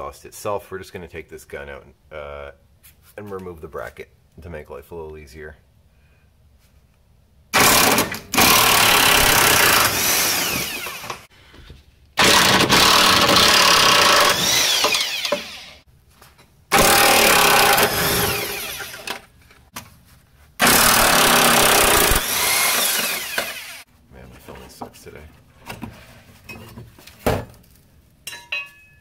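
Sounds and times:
impact wrench bursts: 0:07.6 - 0:11.3, 0:12.2 - 0:15.8, 0:16.7 - 0:19.2, 0:20.6 - 0:23.9.

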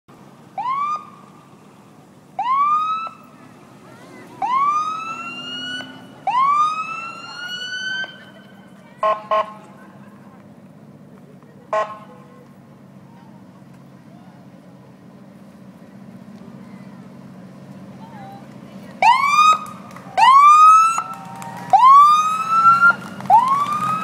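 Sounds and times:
siren whooping: 0:00.6 - 0:01.2, 0:02.4 - 0:03.2, 0:04.4 - 0:08.3, 0:19.0 - 0:24.0
short horn blasts: 0:09.0 - 0:09.6, 0:11.7 - 0:12.3.

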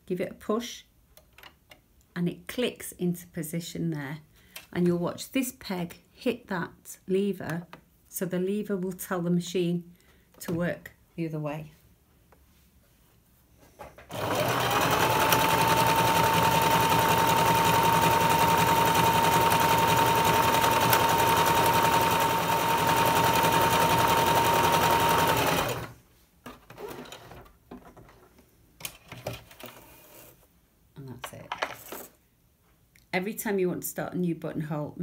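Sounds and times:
sewing machine stitching: 0:14.1 - 0:26.0, 0:26.7 - 0:27.5.

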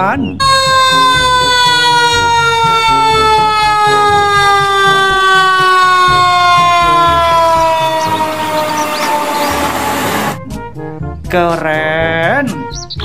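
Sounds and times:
siren sliding down in pitch: 0:00.4 - 0:10.4.

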